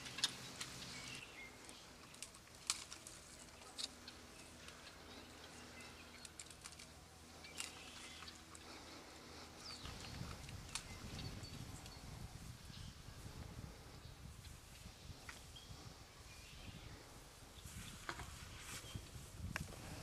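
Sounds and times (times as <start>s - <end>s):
branches snapping: 1.6s - 5.0s, 6.2s - 8.4s.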